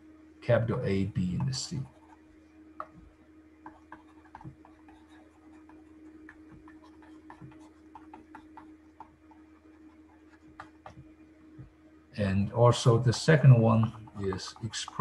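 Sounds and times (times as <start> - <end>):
low electrical hum: 0.0 - 15.0
stylus tapping on tablet screen: 1.3 - 11.8.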